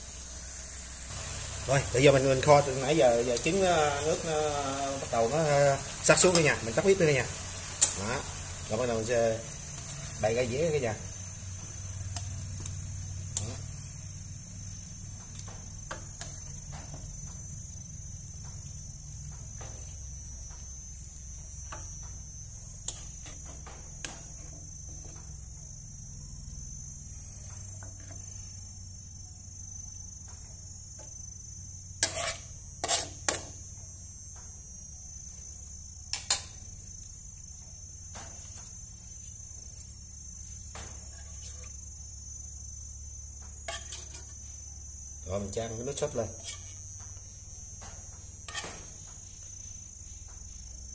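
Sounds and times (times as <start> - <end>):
crickets chirring: 0.0 - 50.9
utensil scraping frying pan: 32.0 - 33.5, 41.0 - 41.8, 43.6 - 44.4, 46.3 - 46.9, 48.4 - 49.0.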